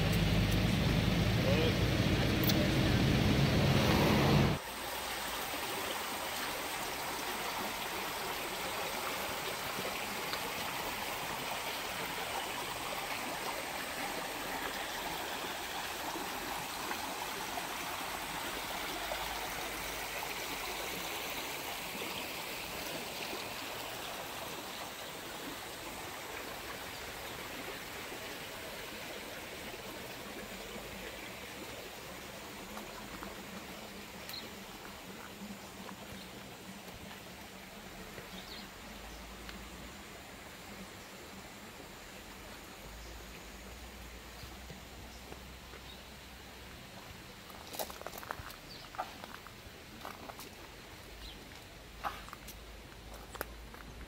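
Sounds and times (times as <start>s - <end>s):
loud low rumble: 0.0s - 4.6s
stream trickling over rocks: 0.0s - 54.0s.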